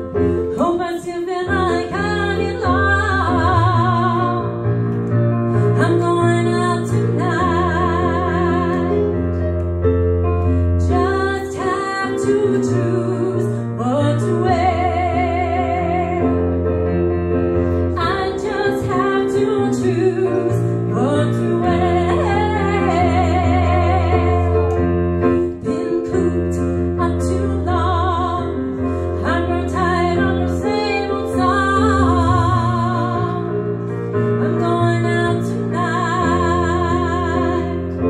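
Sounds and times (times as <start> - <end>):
piano bass notes and chords: 0.0 - 38.0
woman singing with vibrato: 5.8 - 9.0, 18.0 - 24.6, 25.5 - 28.6, 29.2 - 33.5, 34.4 - 37.8.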